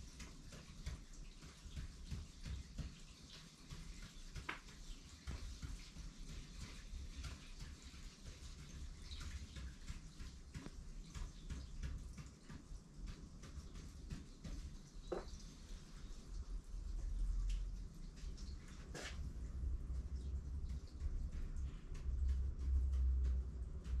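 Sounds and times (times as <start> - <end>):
marker tapping on paper: 0.0 - 12.6, 13.2 - 15.4
low room rumble: 4.4 - 24.0.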